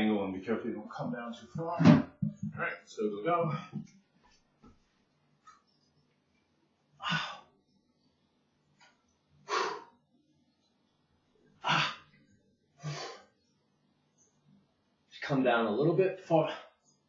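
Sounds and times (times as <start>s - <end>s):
man breathing hard: 7.0s - 7.6s, 9.4s - 10.0s, 12.8s - 13.4s.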